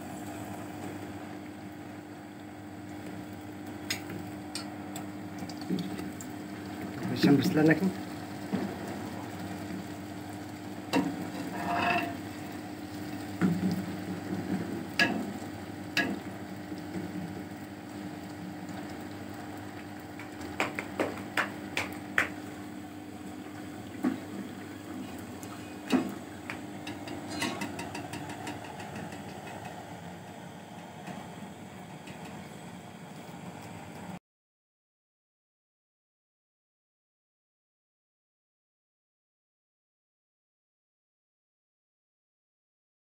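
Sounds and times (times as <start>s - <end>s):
pastries sizzling in hot oil: 0.0s - 33.3s
tongs and spoon scraping pot: 11.3s - 12.2s, 26.8s - 29.2s.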